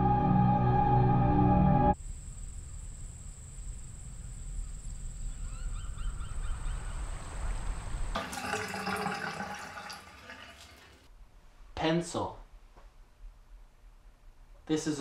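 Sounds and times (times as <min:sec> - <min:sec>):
low wind rumble: 0:02.0 - 0:08.2
birds chirping: 0:02.4 - 0:08.2
water: 0:06.8 - 0:11.1.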